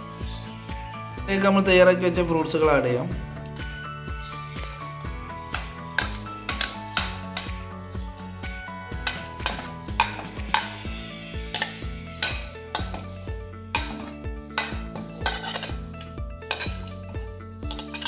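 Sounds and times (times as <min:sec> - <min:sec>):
background music with steady beat: 0:00.0 - 0:18.0
spoon scraping ceramic plate: 0:09.0 - 0:13.1, 0:13.7 - 0:18.0.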